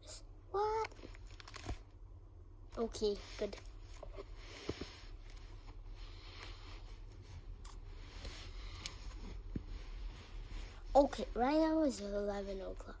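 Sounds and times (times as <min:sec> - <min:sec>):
plastic pages rustling: 0:00.9 - 0:01.8.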